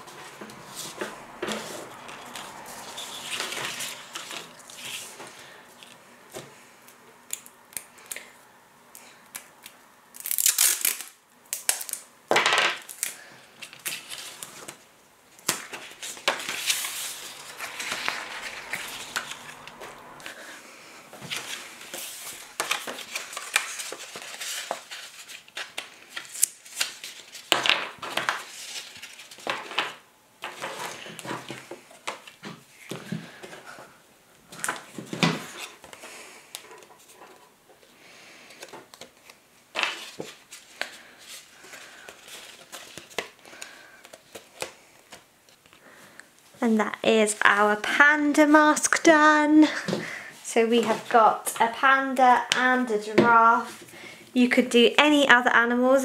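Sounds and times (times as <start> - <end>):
paper rustling and crinkling: 0.0 - 6.0, 12.8 - 20.4, 21.2 - 33.8, 34.5 - 45.8.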